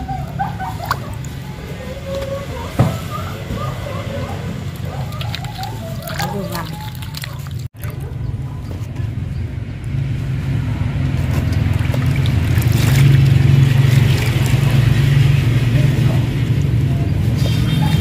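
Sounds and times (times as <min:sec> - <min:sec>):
passing vehicle engine drone: 0:09.5 - 0:18.0.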